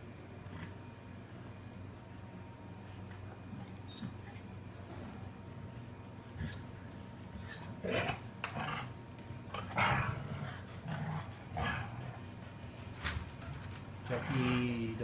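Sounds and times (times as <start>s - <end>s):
dogs growling and yipping: 6.3s - 12.4s.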